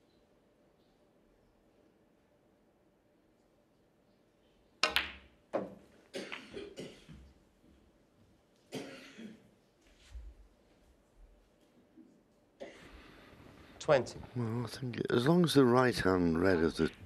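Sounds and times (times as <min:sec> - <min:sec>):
people coughing: 0:06.1 - 0:07.2, 0:08.7 - 0:09.5, 0:12.6 - 0:13.0.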